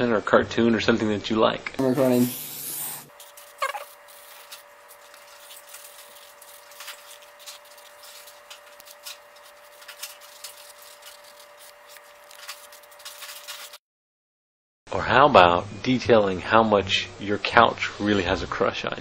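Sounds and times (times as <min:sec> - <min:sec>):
faint hum: 0:01.8 - 0:13.8
marker scratching on paper: 0:01.8 - 0:13.8.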